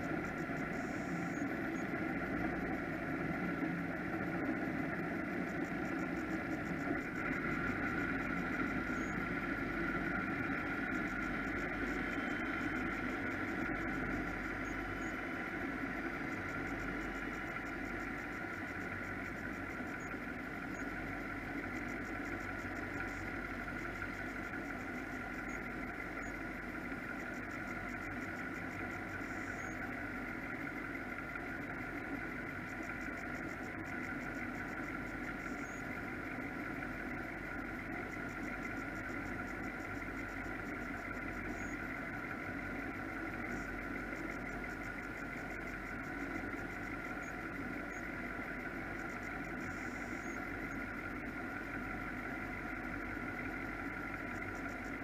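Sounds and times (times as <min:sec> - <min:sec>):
powerboat engines idling: 0:00.0 - 0:55.0.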